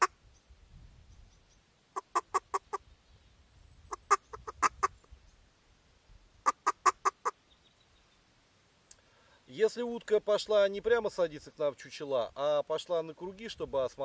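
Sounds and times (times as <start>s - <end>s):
duck call notes: 2.0s - 2.8s.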